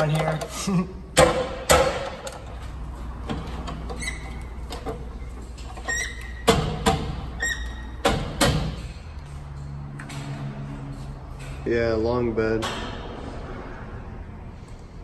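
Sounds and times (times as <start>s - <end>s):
short squeaks: 3.9s - 4.6s, 5.6s - 6.5s, 7.4s - 8.0s.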